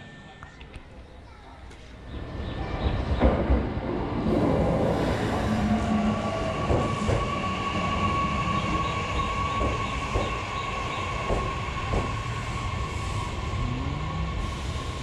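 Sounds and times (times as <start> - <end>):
train wheels clacking over rail joints: 9.5 - 10.4.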